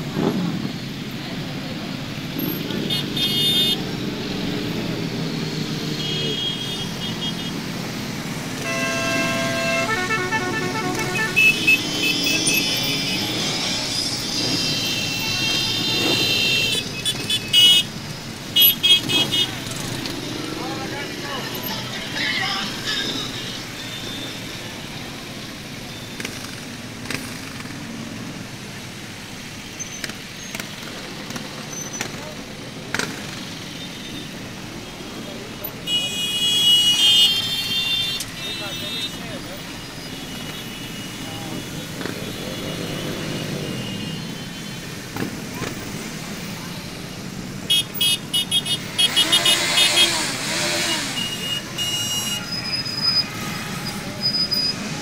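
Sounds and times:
motorcycle engines rumbling: 0:00.0 - 0:55.0
horn toots: 0:08.6 - 0:18.0, 0:47.7 - 0:55.0
motorcycles riding slowly past: 0:24.1 - 0:33.9.

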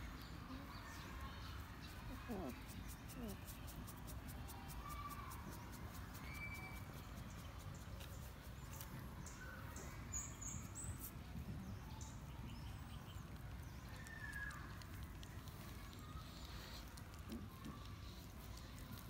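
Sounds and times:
puppies scratching on paving: 0:00.2 - 0:11.4, 0:13.2 - 0:19.0
faint high chirp: 0:04.8 - 0:07.6.

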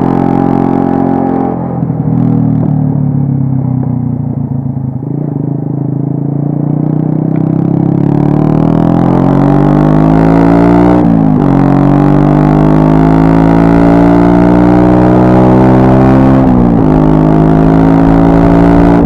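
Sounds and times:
motorcycle engine accelerating: 0:00.0 - 0:19.0.

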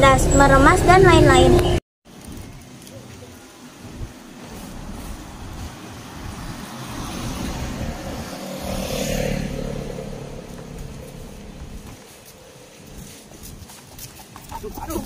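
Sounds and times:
car passing: 0:03.8 - 0:13.7.

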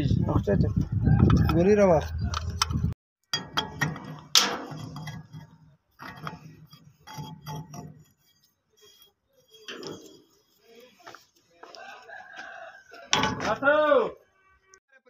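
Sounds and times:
metal pipe fitting clinking: 0:01.4 - 0:10.6.

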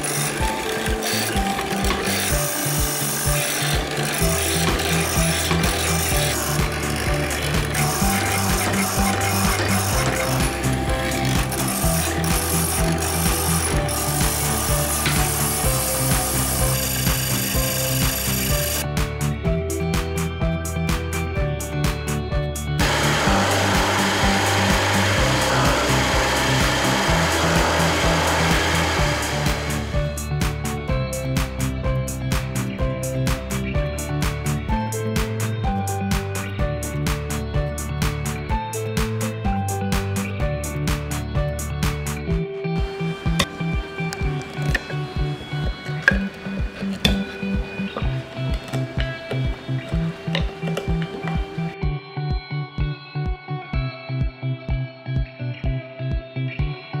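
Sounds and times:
cutting bit rasping into wood: 0:00.0 - 0:18.8, 0:22.8 - 0:30.0, 0:42.9 - 0:51.8
mortiser grinding through wood: 0:00.0 - 0:18.9, 0:22.8 - 0:30.3, 0:42.8 - 0:51.8
background music with bass and beat: 0:03.2 - 0:57.0.

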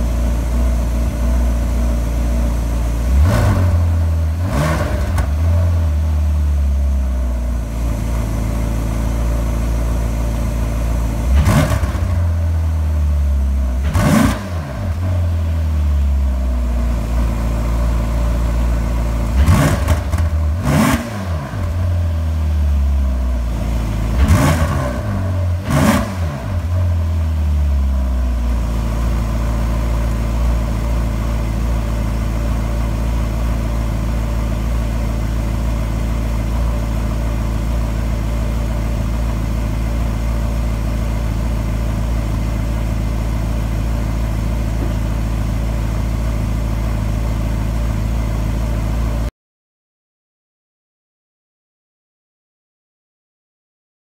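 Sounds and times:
car engine revving: 0:00.0 - 0:06.8, 0:07.5 - 0:13.0, 0:13.7 - 0:15.8, 0:17.2 - 0:27.4, 0:28.5 - 0:49.2
car engine idling: 0:00.0 - 0:49.3.

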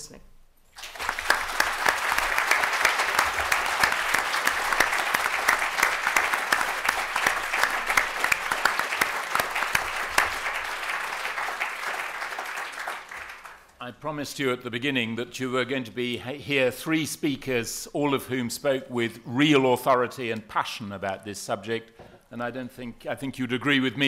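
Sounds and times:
audience applauding: 0:00.7 - 0:13.7.

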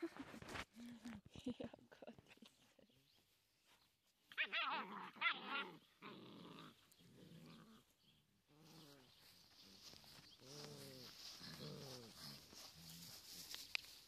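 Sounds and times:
puppies growling: 0:04.4 - 0:08.8, 0:10.4 - 0:13.2.

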